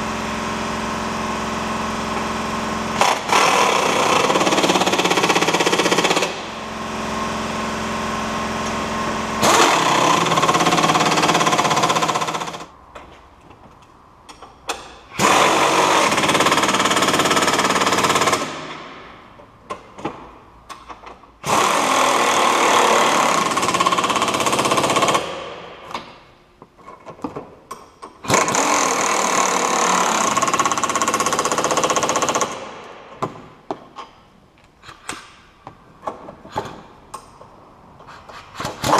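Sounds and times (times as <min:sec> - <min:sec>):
impact wrench hammering: 0:03.0 - 0:06.6, 0:09.4 - 0:12.7, 0:14.3 - 0:26.3.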